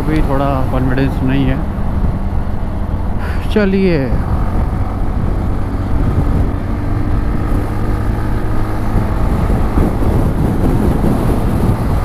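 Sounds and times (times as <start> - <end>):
wind rumble on microphone: 0.0 - 12.0
scooter engine accelerating: 4.2 - 12.0.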